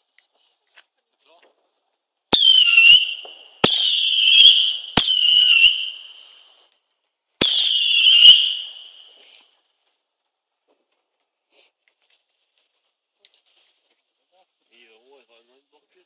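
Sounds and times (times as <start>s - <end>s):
whistling fireworks: 2.3s - 6.7s, 7.4s - 9.4s.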